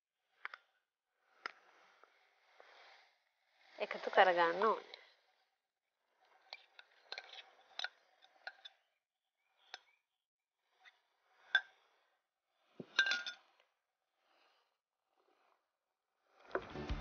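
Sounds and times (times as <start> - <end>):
spoon clinking and scraping glass: 6.4 - 8.8, 12.8 - 13.5.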